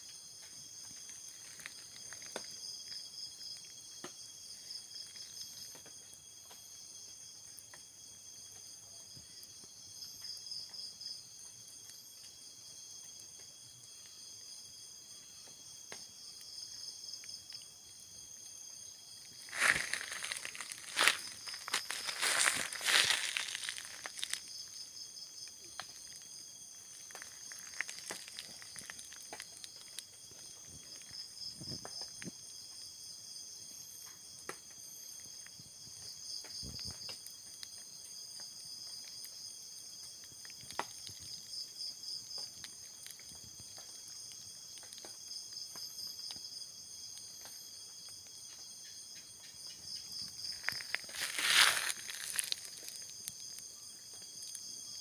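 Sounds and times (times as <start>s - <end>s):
high-pitched insect trills: 0.0s - 55.0s
pulsing insect trill: 15.0s - 40.2s, 41.0s - 55.0s.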